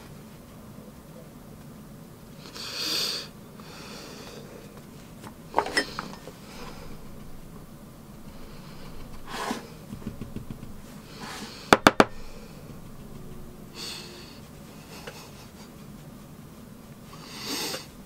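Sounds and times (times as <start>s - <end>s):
soft rustles and swishes: 0.0s - 2.4s, 4.4s - 18.0s
sharp taps: 9.9s - 11.0s.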